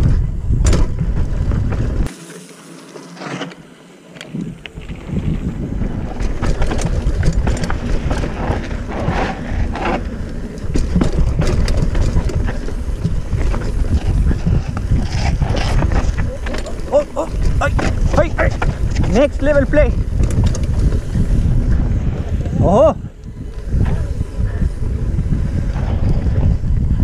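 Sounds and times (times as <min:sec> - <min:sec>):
wind buffeting microphone: 0:00.0 - 0:02.1, 0:04.3 - 0:27.0
bike rattling over bumps: 0:00.0 - 0:27.0.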